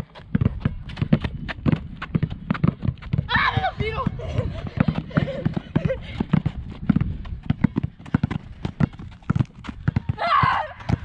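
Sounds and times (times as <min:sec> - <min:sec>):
basketballs bouncing on court: 0:00.0 - 0:11.0
person shouting: 0:03.3 - 0:04.2, 0:10.2 - 0:10.8.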